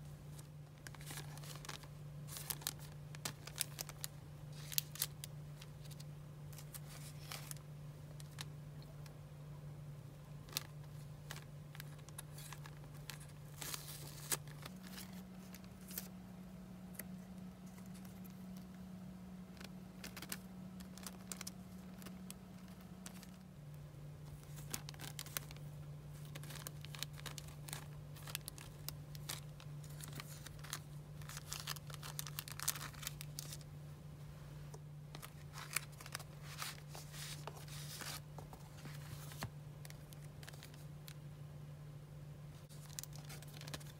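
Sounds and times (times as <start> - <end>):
faint low hum: 0.0 - 43.9
plastic bags crinkling: 0.3 - 8.5, 10.3 - 16.2, 19.5 - 23.5, 24.2 - 33.6, 35.1 - 41.2, 42.7 - 43.9.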